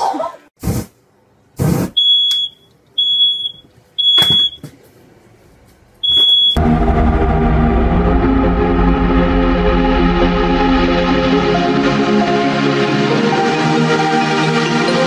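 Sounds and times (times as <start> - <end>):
smoke alarm beeping: 2.0 - 4.7, 6.0 - 6.6
music: 6.6 - 15.0.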